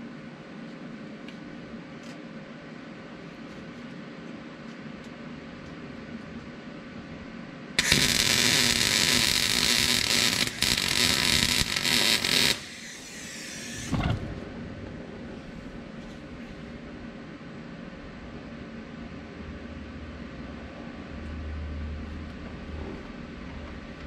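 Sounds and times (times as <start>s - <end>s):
welding arc sizzling and crackling: 7.8s - 13.9s.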